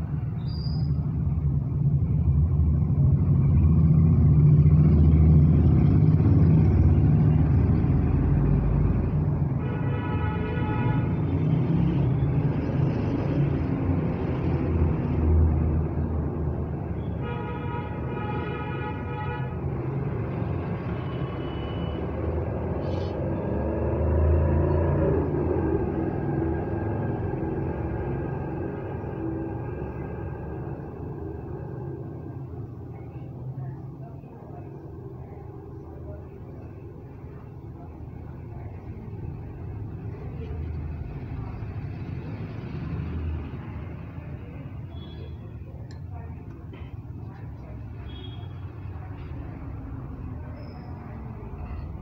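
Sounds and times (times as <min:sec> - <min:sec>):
traffic rumble: 0:00.0 - 0:52.0.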